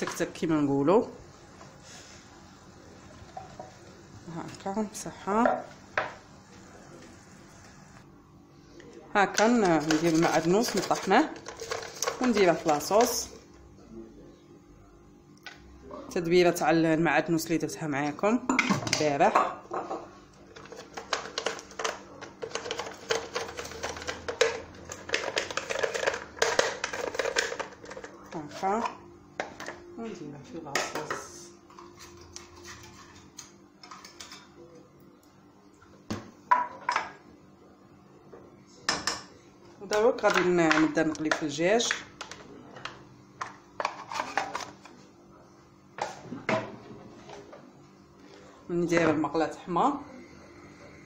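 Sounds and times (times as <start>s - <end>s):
herb mill clicking and rattling: 20.5s - 28.5s.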